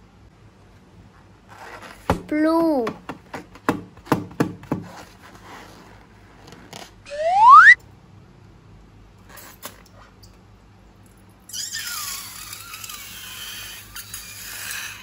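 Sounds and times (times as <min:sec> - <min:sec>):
rising whistle tone: 0:07.1 - 0:07.8.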